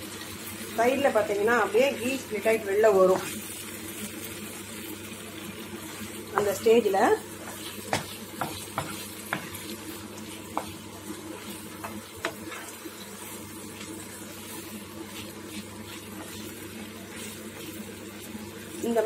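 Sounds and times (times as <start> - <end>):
ghee sizzling: 0.0 - 19.0
spatula stirring thick mixture: 5.5 - 19.0.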